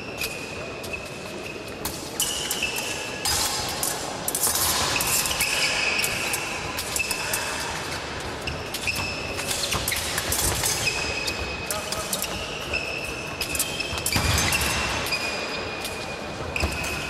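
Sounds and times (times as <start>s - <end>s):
fencing blades clashing: 0.0s - 17.0s.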